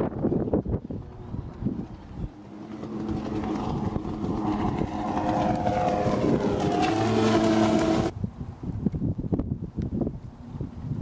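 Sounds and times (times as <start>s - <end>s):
jet ski engine drone: 0.0s - 8.2s.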